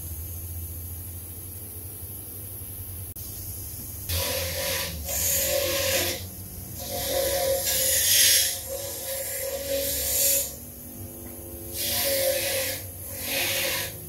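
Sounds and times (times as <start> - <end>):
bench grinder grinding metal: 4.1 - 14.0.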